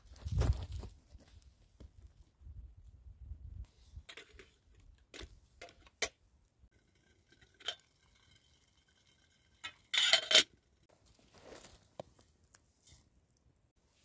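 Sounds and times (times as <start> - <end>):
metal kettles clanking: 6.8 - 10.8.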